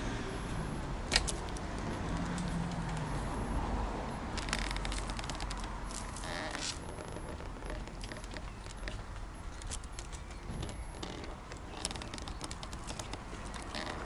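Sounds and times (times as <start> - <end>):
wind and road rumble: 0.0 - 14.0
wicker basket rattling: 4.4 - 14.0.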